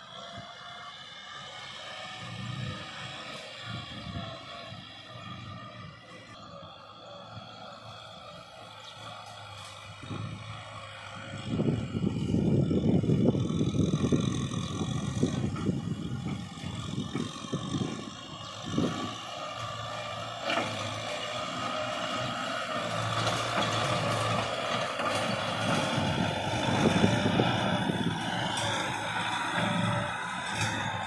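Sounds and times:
rotary tiller churning soil: 0.0 - 31.0
tractor diesel engine running: 0.0 - 31.0.

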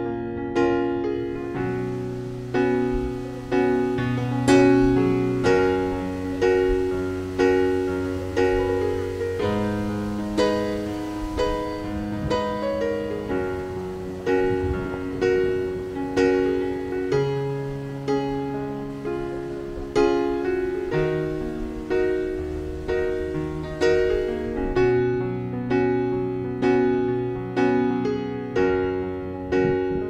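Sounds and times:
calm instrumental music: 0.0 - 30.0
held low bass notes: 1.4 - 16.3.

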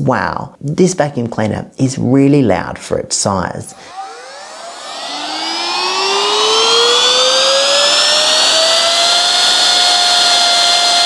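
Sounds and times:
vacuum cleaner motor whine: 3.7 - 11.0.

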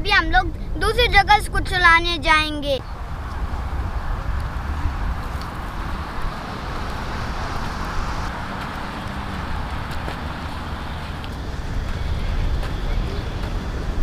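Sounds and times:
wind rumble on microphone: 0.0 - 14.0
rushing hiss: 5.1 - 8.4.

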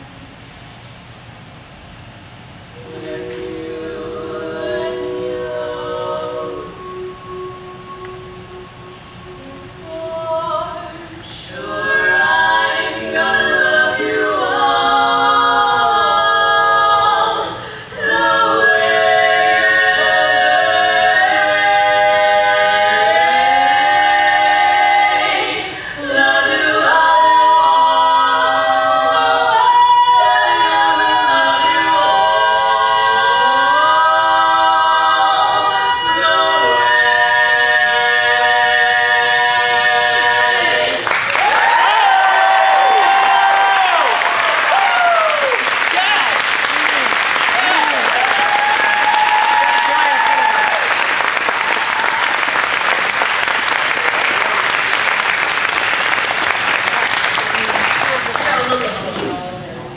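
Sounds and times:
women singing a cappella harmony: 2.8 - 45.1.

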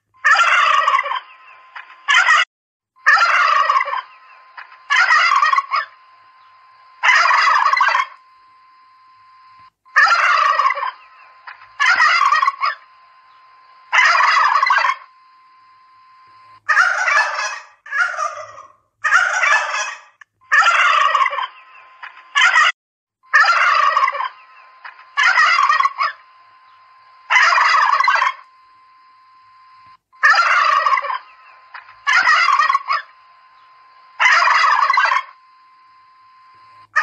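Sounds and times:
turkeys gobbling: 0.2 - 2.4, 3.0 - 8.2, 9.9 - 13.3, 13.9 - 15.1, 16.7 - 22.7, 23.3 - 28.4, 30.2 - 33.2, 34.2 - 35.4.

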